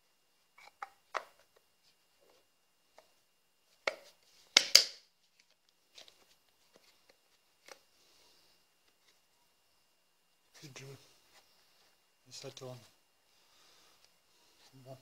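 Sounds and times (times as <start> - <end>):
plastic parts clicking and knocking: 3.8 - 6.8.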